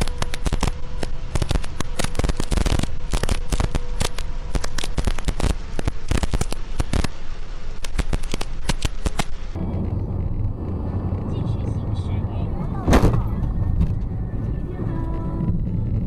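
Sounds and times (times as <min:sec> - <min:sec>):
heavy rain on car windscreen: 0:00.0 - 0:11.6
low rumble: 0:00.0 - 0:16.0.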